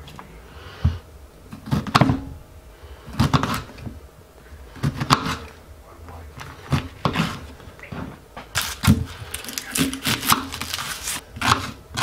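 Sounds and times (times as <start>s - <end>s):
knife cutting lemon: 8.6s - 12.0s.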